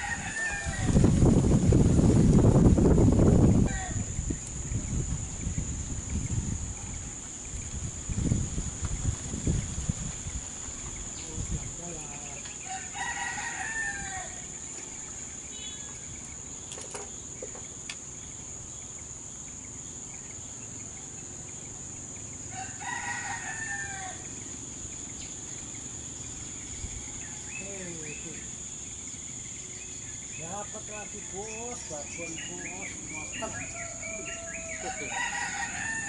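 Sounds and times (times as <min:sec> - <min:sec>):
rooster crowing: 0:00.0 - 0:01.0, 0:12.6 - 0:14.5, 0:22.5 - 0:24.3, 0:33.2 - 0:36.0
high-pitched insect drone: 0:00.0 - 0:36.0.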